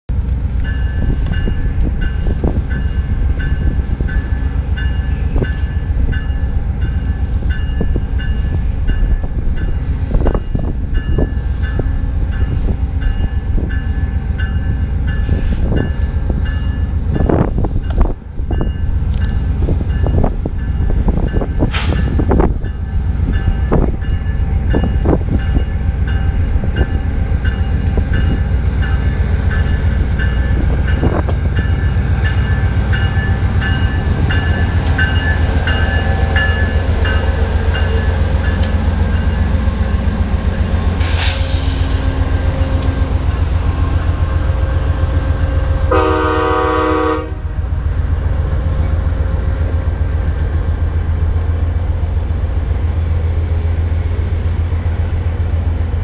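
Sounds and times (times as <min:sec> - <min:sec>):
diesel locomotive rumble: 0:00.1 - 0:56.0
brief hiss: 0:21.7 - 0:22.1, 0:41.0 - 0:42.1.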